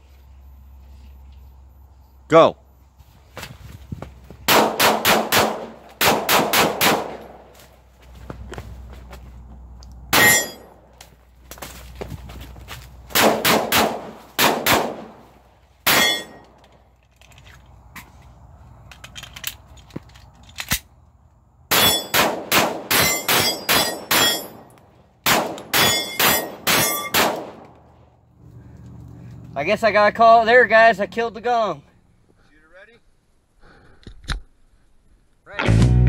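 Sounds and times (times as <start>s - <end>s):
pistol shots: 4.5s - 7.4s, 10.1s - 10.7s, 13.1s - 15.2s, 15.8s - 16.4s, 21.7s - 27.7s.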